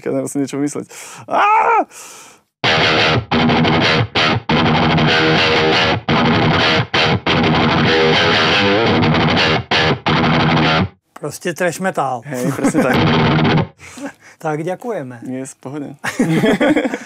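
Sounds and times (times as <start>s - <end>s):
distorted electric guitar riff: 2.6s - 11.0s, 12.8s - 13.8s.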